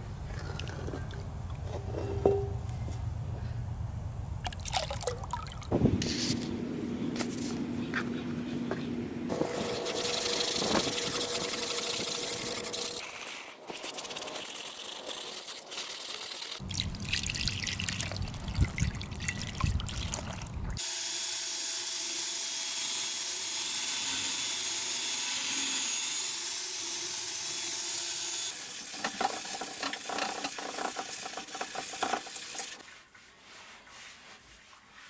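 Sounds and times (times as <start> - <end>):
power drill with wire brush: 9.3 - 16.6
sponge scrubbing skillet: 9.3 - 16.6, 28.6 - 35.0
water splashing on skillet: 28.6 - 32.8.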